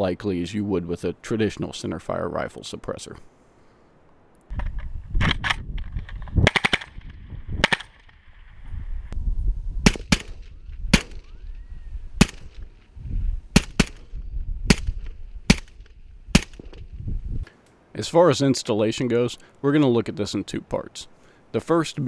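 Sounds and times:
suppressed rifle shots: 6.4s - 8.2s, 9.8s - 11.4s, 12.2s - 12.7s, 13.5s - 16.9s.

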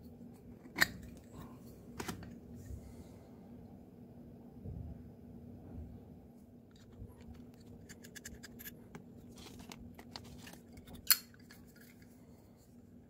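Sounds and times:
small metallic clicks and scraping: 6.7s - 12.2s.

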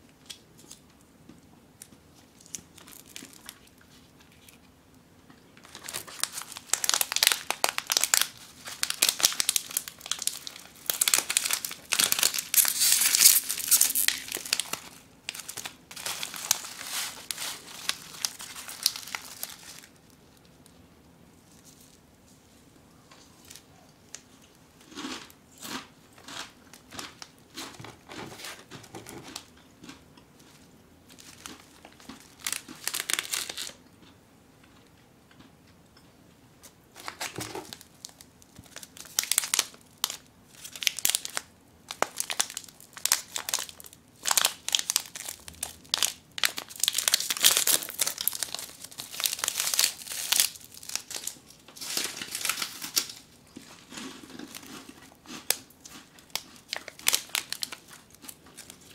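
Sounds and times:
plastic wrappers crinkling: 1.8s - 4.7s, 5.6s - 20.6s, 30.4s - 33.8s, 37.0s - 58.9s.

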